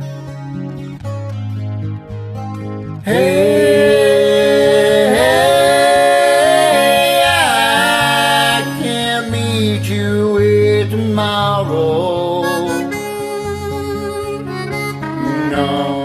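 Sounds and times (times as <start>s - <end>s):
karaoke backing track: 0.0s - 16.0s
person singing long held notes: 3.1s - 10.0s, 15.2s - 16.0s.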